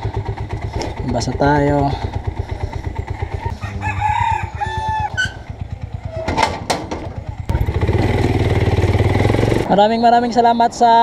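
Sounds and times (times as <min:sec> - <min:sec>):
motorcycle engine idling: 0:00.0 - 0:10.8
rooster crowing: 0:03.1 - 0:05.6
metal gate clanking shut: 0:05.1 - 0:05.5, 0:06.1 - 0:07.2.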